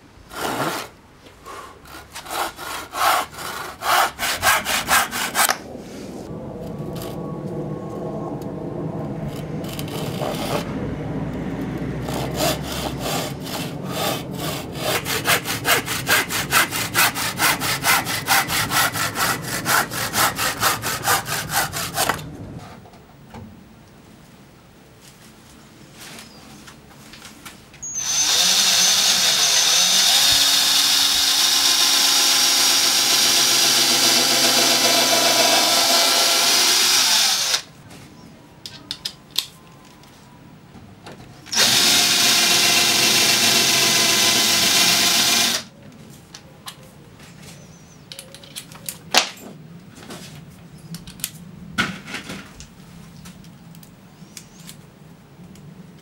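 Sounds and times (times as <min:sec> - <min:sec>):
cordless drill whining: 0:27.8 - 0:37.7, 0:41.5 - 0:45.7.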